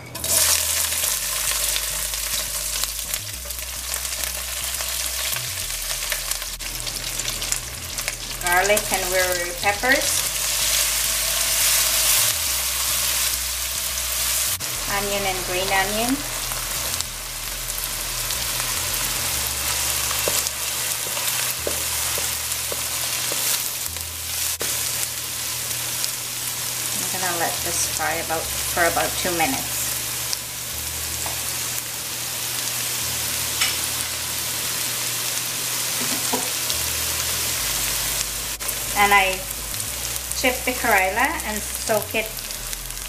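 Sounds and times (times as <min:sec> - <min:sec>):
shrimps sizzling in hot oil: 0:00.2 - 0:43.0
wooden spatula scraping wok: 0:04.4 - 0:17.0, 0:18.3 - 0:25.0.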